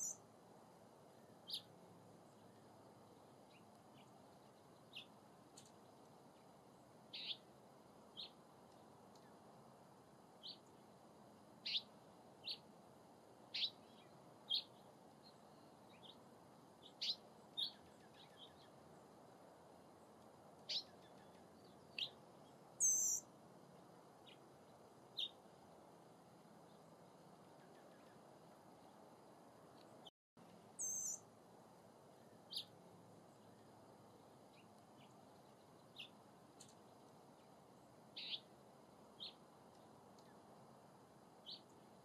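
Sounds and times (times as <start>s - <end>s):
hummingbird chip calls: 22.8s - 23.2s, 30.8s - 31.2s, 38.2s - 38.5s.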